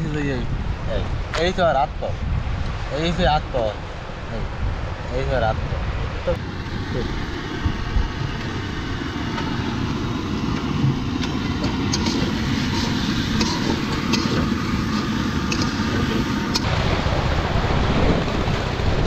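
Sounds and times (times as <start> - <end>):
boat engine running: 3.8 - 19.0.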